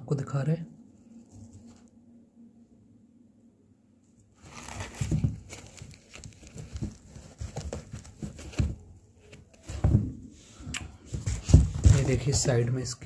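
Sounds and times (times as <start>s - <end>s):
shoe fabric rustling and scraping: 1.1s - 2.0s, 4.3s - 12.7s
soft thumps: 4.8s - 10.3s, 11.1s - 12.4s.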